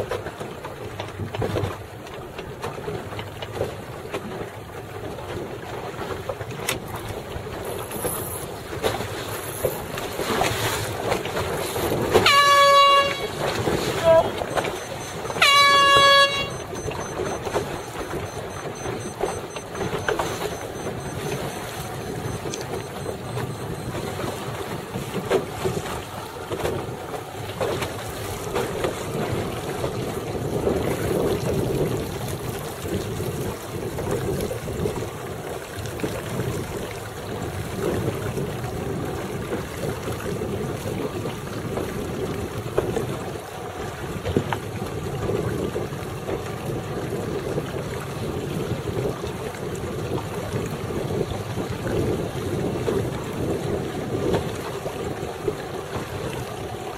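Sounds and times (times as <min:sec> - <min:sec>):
water lapping and splashing: 0:00.0 - 0:56.9
wind rushing over microphone: 0:28.3 - 0:35.2.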